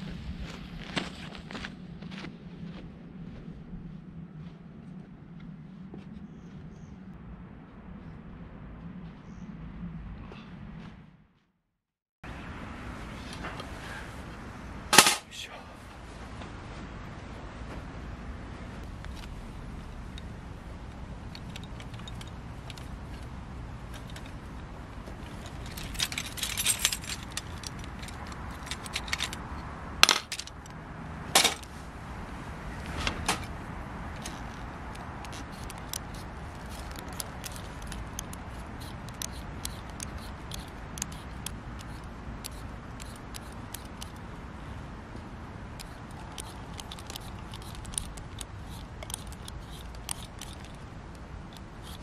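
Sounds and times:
utensils jangling: 0:15.0 - 0:15.3, 0:21.3 - 0:23.3, 0:23.9 - 0:30.6, 0:31.4 - 0:31.7, 0:34.2 - 0:44.2, 0:45.8 - 0:50.8.

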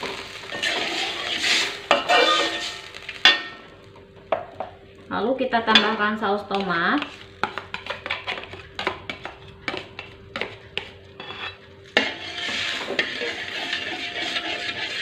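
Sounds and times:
spoon scraping wok while stirring: 0:00.4 - 0:03.3, 0:06.5 - 0:15.0.

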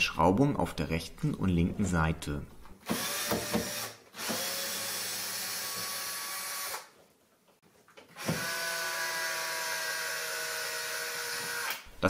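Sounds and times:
cordless drill driving screws: 0:02.8 - 0:06.9, 0:08.1 - 0:11.8.

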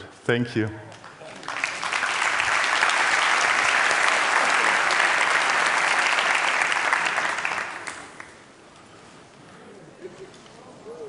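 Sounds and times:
audience applause: 0:00.9 - 0:08.5.

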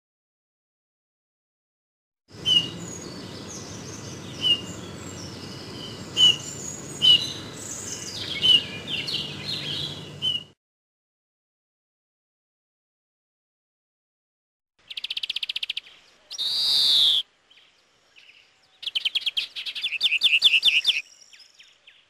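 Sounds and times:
bird piping notes: 0:02.4 - 0:10.6, 0:14.8 - 0:22.0
faint high chirps: 0:14.8 - 0:21.8.

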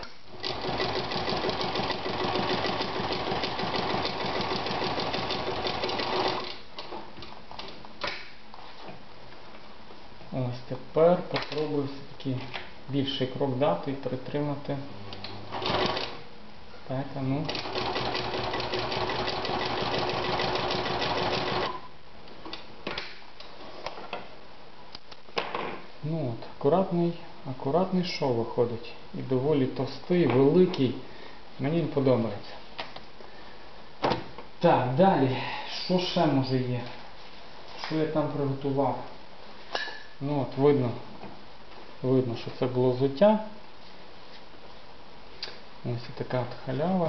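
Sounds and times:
sewing machine stitching: 0:00.4 - 0:06.6, 0:15.5 - 0:16.2, 0:17.5 - 0:21.8.

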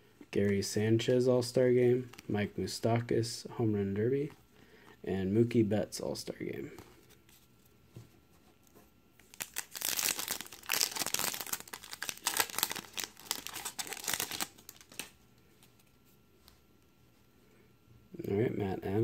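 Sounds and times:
card pack wrapper crinkling and tearing: 0:09.2 - 0:15.2.

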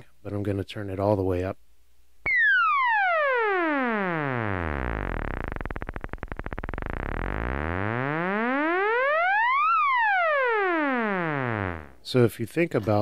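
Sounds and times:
synthesizer tone gliding in pitch: 0:02.3 - 0:12.0
fast clicking buzz: 0:03.0 - 0:12.0.

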